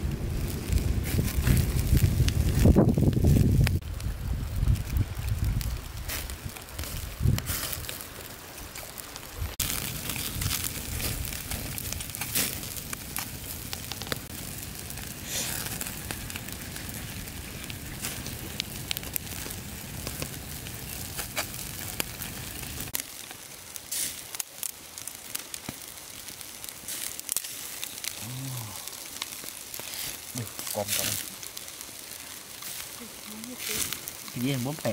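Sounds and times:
low rumble: 0.0 - 5.8
wood fire crackling and popping: 0.0 - 34.9.

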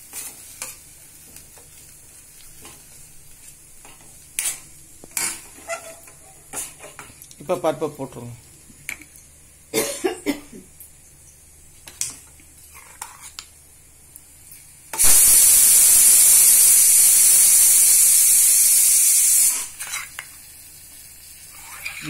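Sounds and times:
pressure cooker whistle hissing: 15.0 - 19.8.

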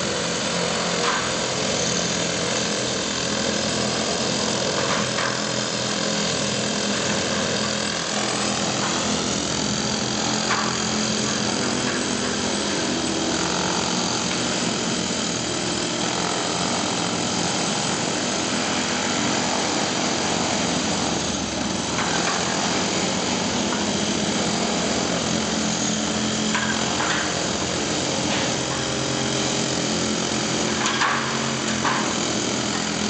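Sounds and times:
construction machinery running: 0.0 - 33.0.

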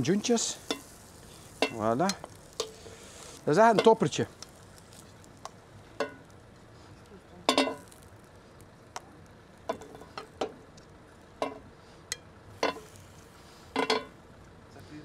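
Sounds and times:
metal tongs clinking on grill: 0.0 - 5.1, 6.0 - 6.3, 7.4 - 8.0, 11.4 - 13.0, 13.8 - 14.1
faint steady sizzle: 0.0 - 15.0.

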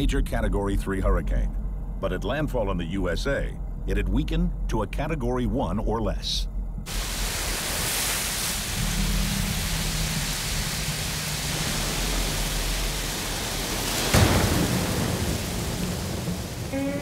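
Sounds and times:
rain and wind: 6.9 - 17.0
loud crack: 8.8 - 16.8.

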